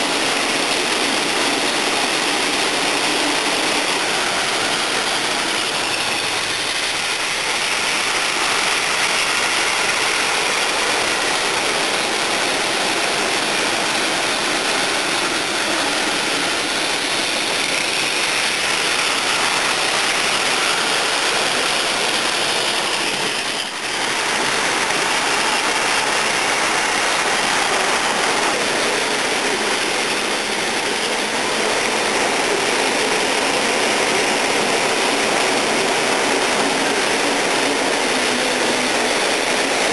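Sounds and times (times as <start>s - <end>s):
toy trains running on plastic track: 0.0s - 39.9s.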